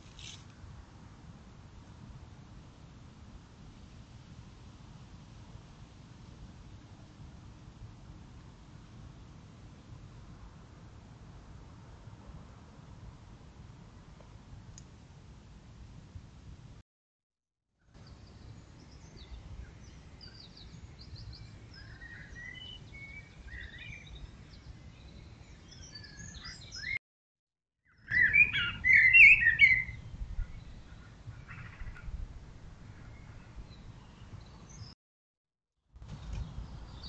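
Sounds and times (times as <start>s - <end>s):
birds singing and chirping: 20.2s - 27.0s, 27.9s - 32.0s.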